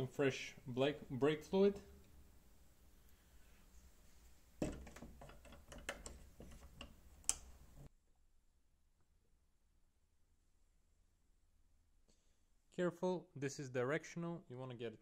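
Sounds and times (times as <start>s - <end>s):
small parts clicking and tapping: 4.6s - 7.6s.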